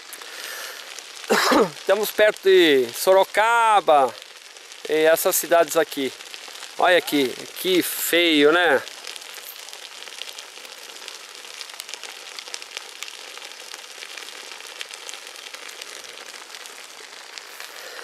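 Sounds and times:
brush fire crackling and popping: 0.0 - 18.0.

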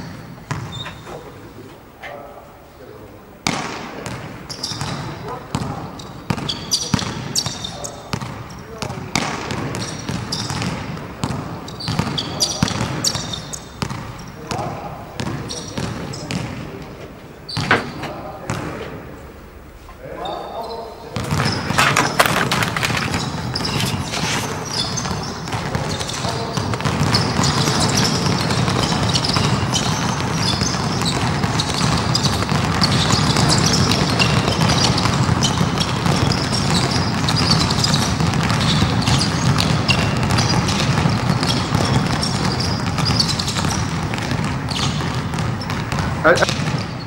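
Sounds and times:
basketballs bouncing: 0.0 - 2.2, 3.3 - 19.6, 20.2 - 47.0
din of players moving: 21.3 - 24.9.

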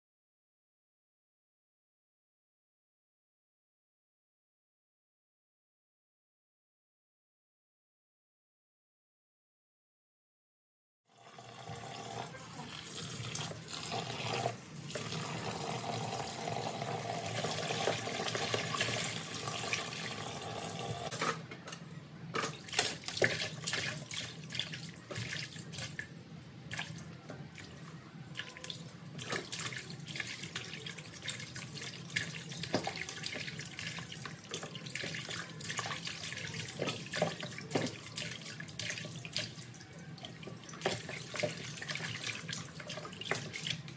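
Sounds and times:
tap water running into basin: 11.2 - 21.4, 22.4 - 26.1, 28.4 - 43.9.

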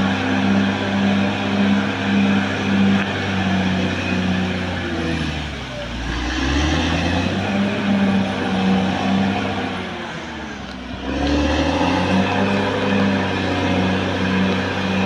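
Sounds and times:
bulldozer diesel engine under load: 0.0 - 15.0.

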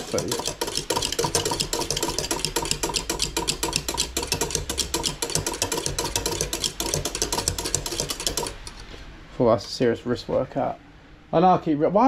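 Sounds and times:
utensil clicking against pan: 0.0 - 8.7.

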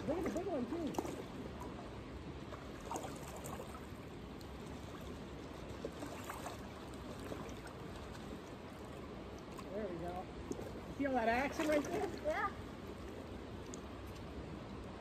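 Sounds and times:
river water washing: 0.0 - 15.0
light ticks: 13.6 - 15.0.

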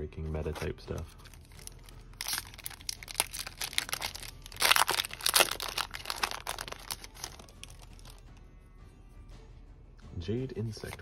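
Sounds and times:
foil wrapper crinkling and tearing: 0.5 - 8.2.

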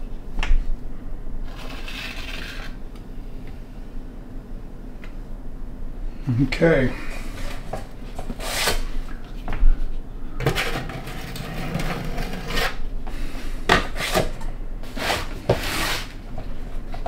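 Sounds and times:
putty knife scraping compound: 1.5 - 2.8, 8.3 - 8.9, 10.4 - 12.9, 13.7 - 16.2.

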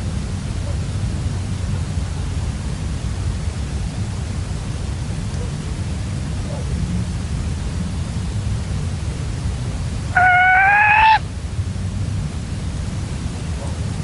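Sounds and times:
partridge call: 10.1 - 11.2.

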